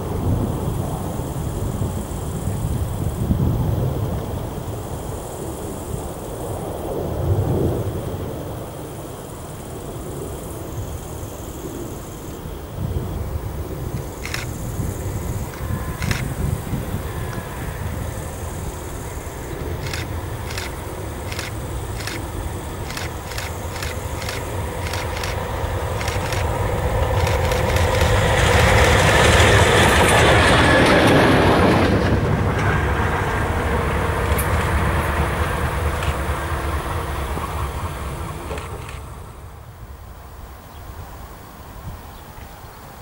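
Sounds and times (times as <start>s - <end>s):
diesel locomotive passing: 0.0s - 43.0s
wheels on rail: 9.1s - 43.0s
sharp clicks: 13.9s - 14.6s, 15.5s - 16.3s, 19.7s - 28.8s.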